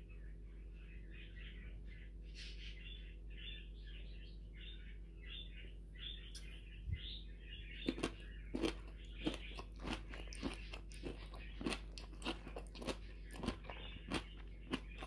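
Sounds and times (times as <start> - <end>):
bird chirping: 0.0 - 15.0
faint steady hum: 0.0 - 15.0.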